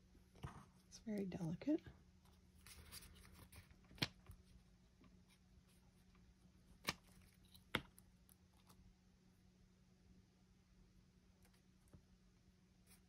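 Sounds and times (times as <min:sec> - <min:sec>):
paper rustling: 0:02.3 - 0:04.5.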